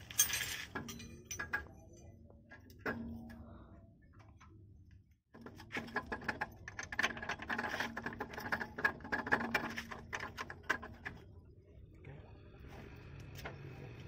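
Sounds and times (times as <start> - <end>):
metal parts clicking and rattling: 0.0 - 1.8, 5.4 - 11.2.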